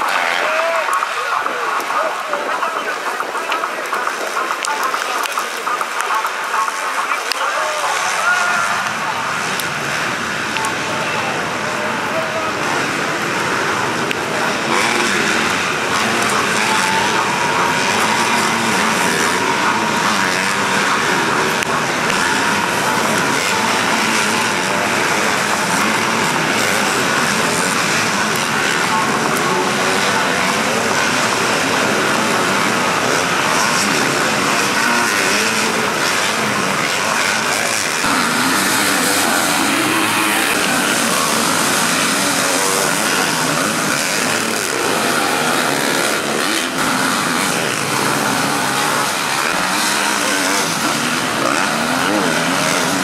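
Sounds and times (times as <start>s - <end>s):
motocross bikes revving: 0.0s - 53.0s.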